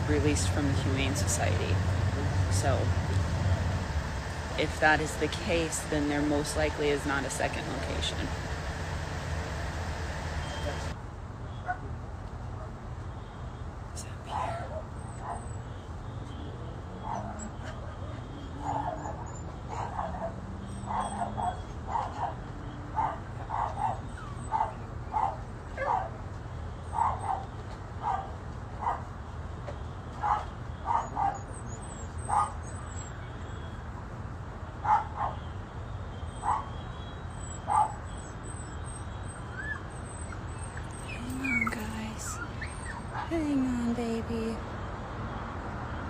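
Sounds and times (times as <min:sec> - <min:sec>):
steady low hum: 0:00.0 - 0:11.0
dog barking: 0:18.6 - 0:22.4, 0:23.0 - 0:26.2, 0:26.9 - 0:29.1, 0:30.2 - 0:31.5, 0:32.3 - 0:32.6, 0:34.8 - 0:35.5, 0:36.4 - 0:36.8, 0:37.6 - 0:38.1.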